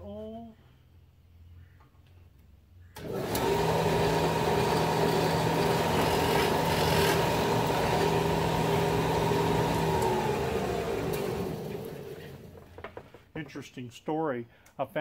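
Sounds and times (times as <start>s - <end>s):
drill bit boring plywood: 3.0s - 12.8s
drill press motor humming: 3.0s - 12.8s.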